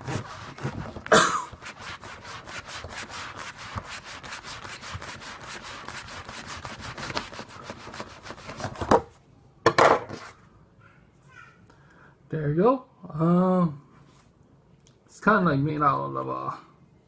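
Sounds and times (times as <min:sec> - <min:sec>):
knife sawing through wood: 0:00.0 - 0:08.6.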